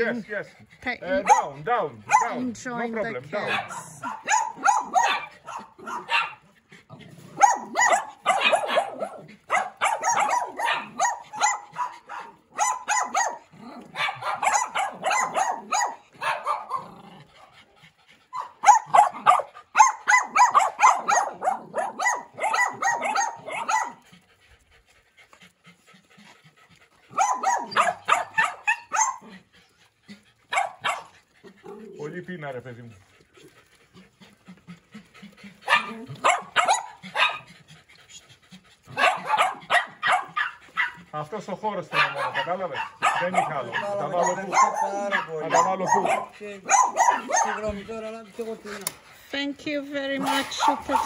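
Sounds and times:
dogs barking: 0.8s - 24.2s, 27.1s - 29.5s, 30.1s - 33.0s, 33.6s - 37.7s, 38.8s - 49.0s, 50.1s - 51.0s.

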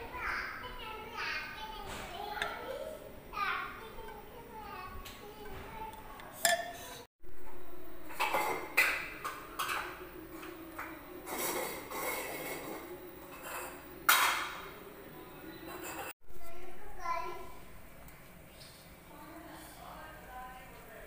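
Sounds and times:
utensils and pot knocking and clinking: 5.0s - 14.7s.

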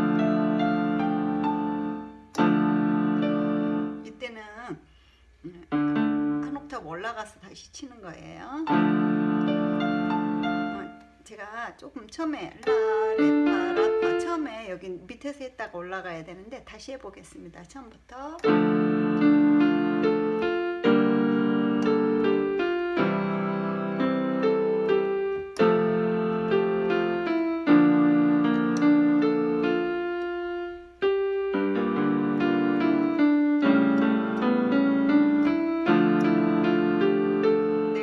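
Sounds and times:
keyboard piano chords and melody: 0.0s - 4.3s, 5.7s - 6.7s, 8.6s - 11.2s, 12.6s - 14.6s, 18.4s - 38.0s.

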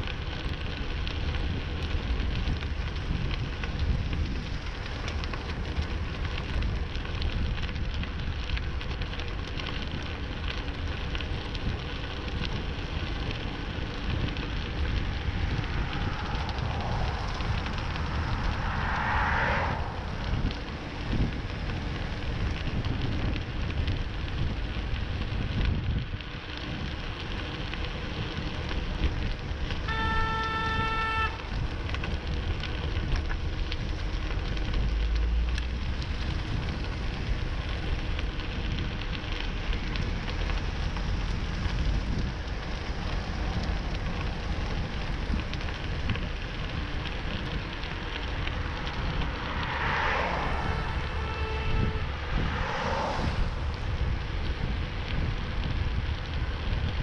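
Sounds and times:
road noise: 0.0s - 57.0s
wind on microphone: 1.0s - 9.1s, 11.0s - 57.0s
car horn honking: 29.9s - 31.4s, 51.1s - 52.1s.

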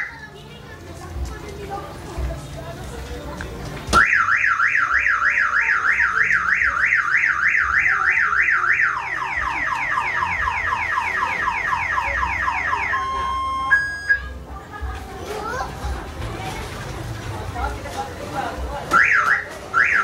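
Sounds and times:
car alarm siren: 4.0s - 14.2s, 19.0s - 20.0s
short steady beeps: 9.1s - 14.3s.

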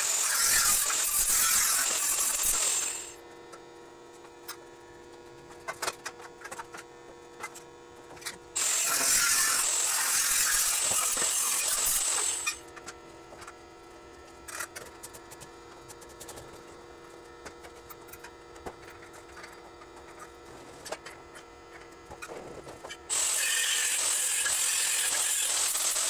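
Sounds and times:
angle grinder grinding steel: 0.0s - 3.2s, 8.6s - 12.6s, 23.1s - 26.0s.

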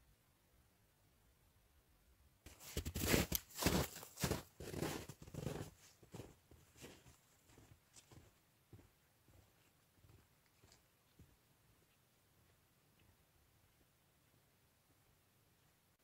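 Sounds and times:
boots crunching through snow: 2.5s - 10.2s.

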